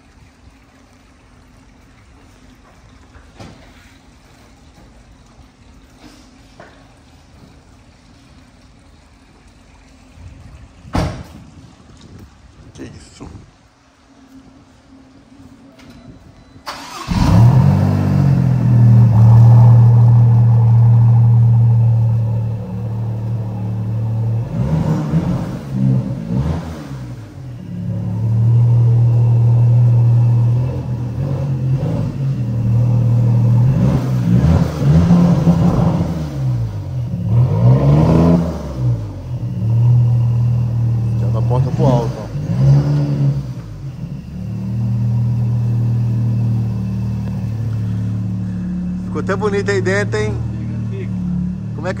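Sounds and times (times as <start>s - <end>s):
car engine starting and idling: 14.7s - 52.0s
engine revving in short blips: 16.6s - 52.0s.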